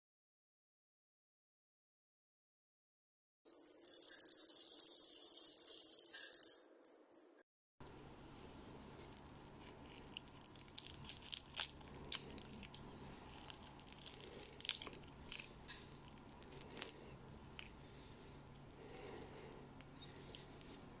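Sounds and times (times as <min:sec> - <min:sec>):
dry insect legs snapping: 0:10.0 - 0:12.8, 0:13.4 - 0:17.0.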